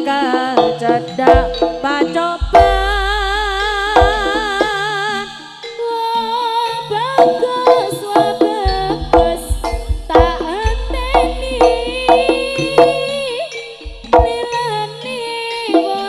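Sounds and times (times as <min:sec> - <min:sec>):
drum strokes: 0:00.0 - 0:05.4, 0:06.9 - 0:16.0
ornamented high melody: 0:00.2 - 0:16.0
deep bass notes: 0:02.4 - 0:04.6, 0:08.7 - 0:12.9, 0:13.9 - 0:14.4.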